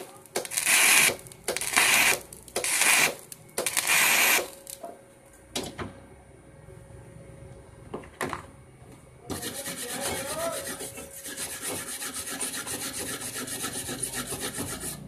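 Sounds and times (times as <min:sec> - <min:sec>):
welding arc crackling: 0:00.0 - 0:04.8.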